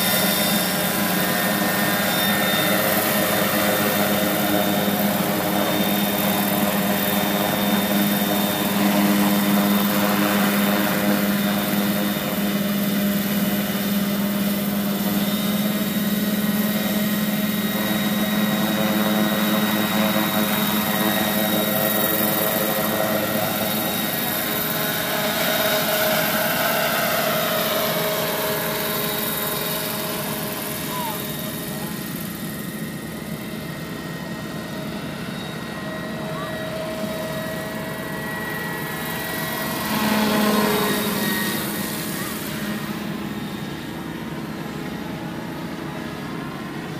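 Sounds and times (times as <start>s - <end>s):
thin high whine: 0.0s - 46.4s
model helicopter flying: 0.0s - 46.9s.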